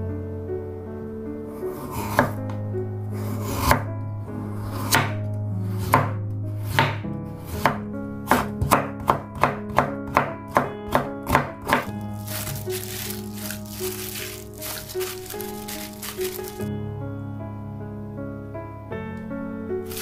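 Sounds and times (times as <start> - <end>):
knife chopping on wooden board: 7.6 - 13.1.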